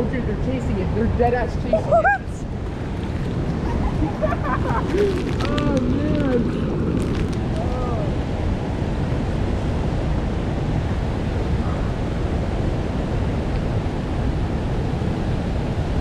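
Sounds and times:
creek rushing over rocks: 2.4s - 9.4s.

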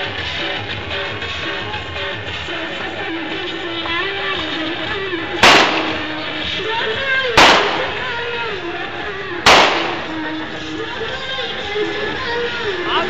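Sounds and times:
crowd noise: 0.0s - 13.0s
loud explosive bangs: 5.4s - 6.6s, 7.4s - 8.3s, 9.4s - 10.3s.

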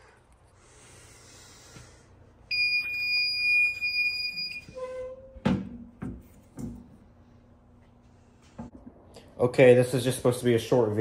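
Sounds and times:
fire alarm tone: 2.5s - 5.1s.

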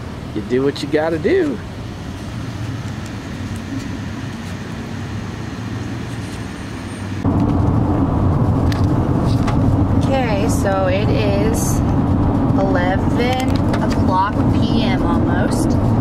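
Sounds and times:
outdoor background hum: 0.0s - 16.0s
road and engine noise in vehicle: 0.0s - 16.0s.

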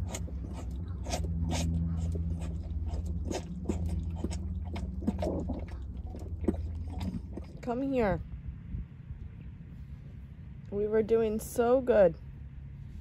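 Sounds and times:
calf sucking from a bottle: 0.0s - 7.6s
steady low rumble: 0.0s - 13.0s.

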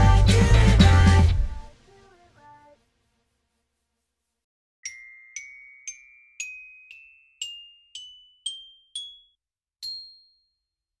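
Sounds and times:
mallet percussion jingle: 4.8s - 10.8s.

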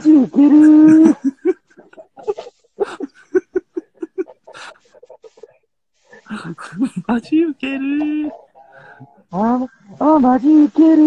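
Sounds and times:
man laughing: 0.4s - 5.5s.

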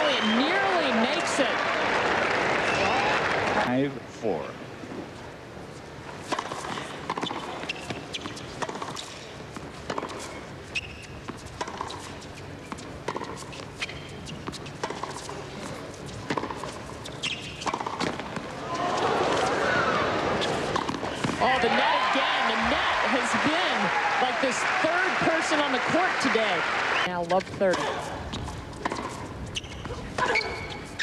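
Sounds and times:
tennis ball bouncing on court: 6.2s - 18.5s, 20.4s - 26.4s, 27.0s - 31.0s
tennis racquet hits: 13.1s - 19.5s.

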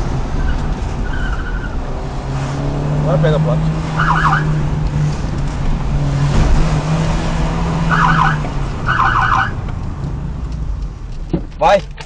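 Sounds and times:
car engine and road noise: 0.0s - 12.0s
police siren warble: 4.0s - 4.6s, 7.8s - 9.6s.

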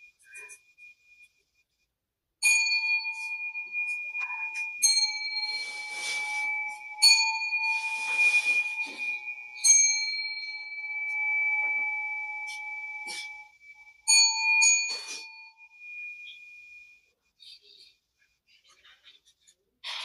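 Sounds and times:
bowl bell ringing: 0.0s - 1.3s, 2.4s - 17.1s.

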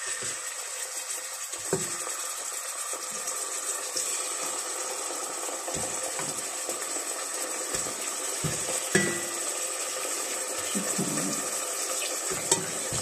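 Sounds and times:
chicken sizzling in a pot: 0.0s - 13.0s
wooden spoon knocking on pot: 5.8s - 6.5s, 7.7s - 9.6s, 12.3s - 13.0s.

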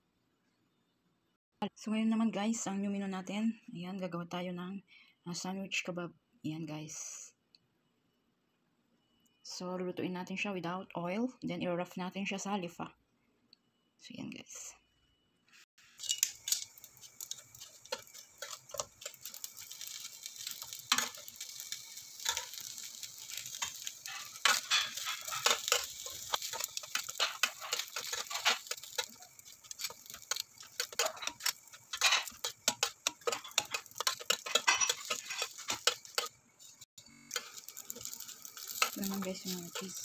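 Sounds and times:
sizzling in a pan: 15.5s - 40.0s
metal tongs clicking on grill pan: 16.0s - 36.3s, 37.3s - 40.0s.

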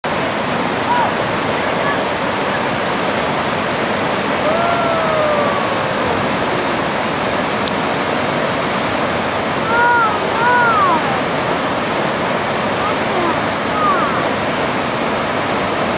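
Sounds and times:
waterfall roaring: 0.0s - 15.9s
person calling out: 4.4s - 6.9s, 9.6s - 11.5s, 12.8s - 14.4s.

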